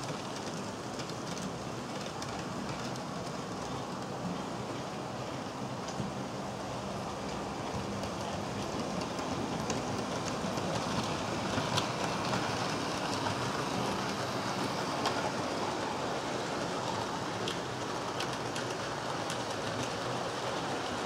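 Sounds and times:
model train wheels rattling on rails: 7.2 - 21.0.

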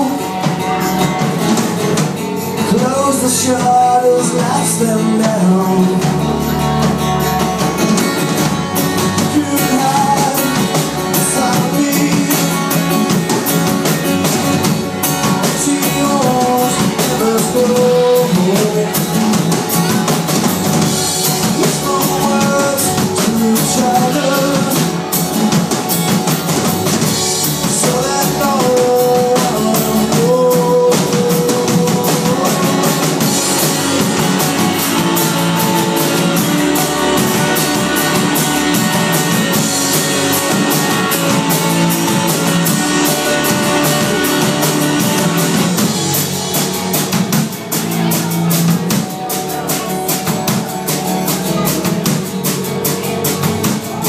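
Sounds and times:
drum kit: 0.0 - 54.0
electric guitar: 0.0 - 54.0
rock band playing live: 0.0 - 54.0.

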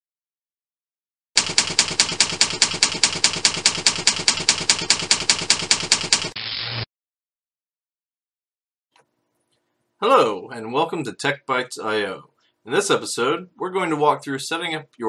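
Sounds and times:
typewriter keys clacking: 1.4 - 6.4.

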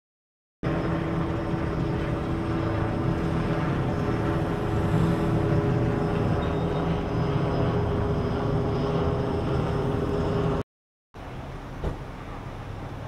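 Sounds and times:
engine drone: 0.6 - 10.6
outdoor background: 0.6 - 10.6, 11.2 - 13.0.

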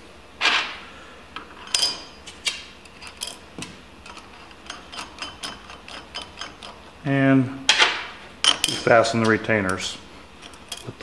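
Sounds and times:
steel parts clinking: 1.6 - 2.2, 4.0 - 6.8, 7.7 - 11.0.

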